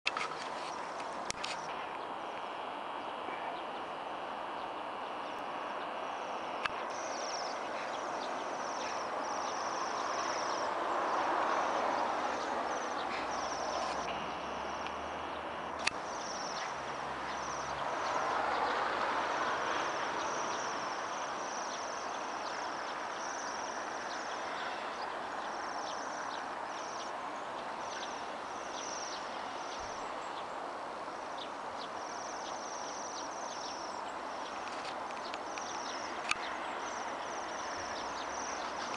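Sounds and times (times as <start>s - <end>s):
broad rushing noise: 0.1s - 38.9s
birds trilling: 3.0s - 30.5s.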